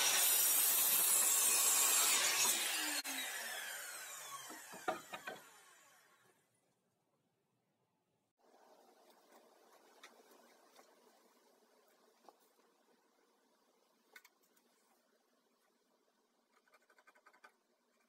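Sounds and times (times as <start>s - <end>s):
mitre saw cutting wood: 0.0s - 6.2s
saw blade spinning down: 0.0s - 6.2s
wood knocks: 4.5s - 5.5s.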